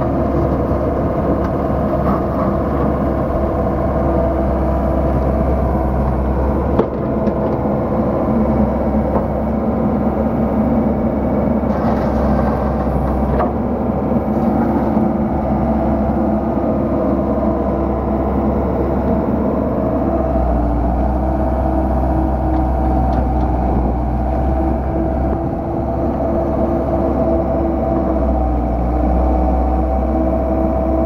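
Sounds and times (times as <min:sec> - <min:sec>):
excavator diesel engine running: 0:00.0 - 0:31.0.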